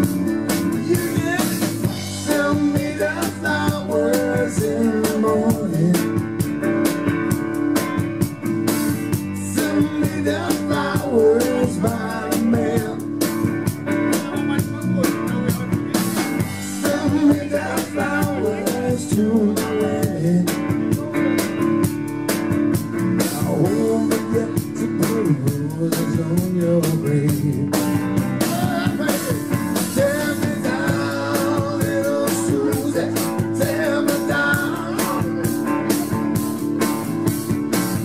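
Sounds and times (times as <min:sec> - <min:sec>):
drums: 0:00.0 - 0:38.0
electric bass: 0:00.0 - 0:38.0
electric guitar lead lines: 0:00.0 - 0:38.0.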